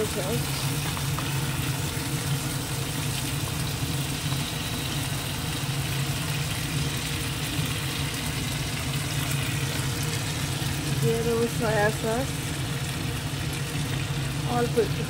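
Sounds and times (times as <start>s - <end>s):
motor hum with hiss: 0.0s - 15.0s.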